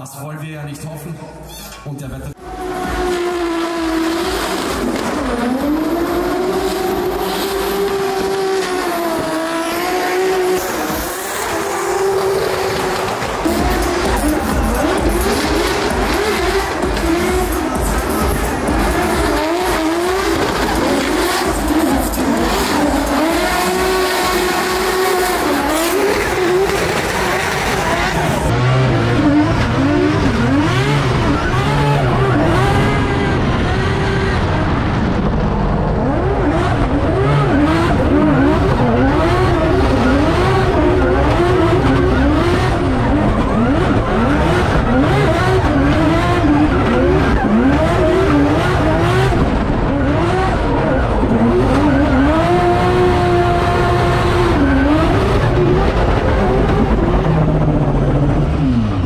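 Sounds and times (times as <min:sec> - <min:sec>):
car engine revving hard: 0:02.3 - 0:59.0.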